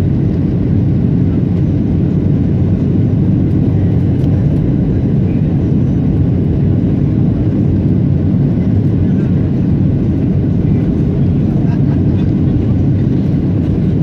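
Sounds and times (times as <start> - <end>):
jet airliner cabin rumble: 0.0 - 14.0.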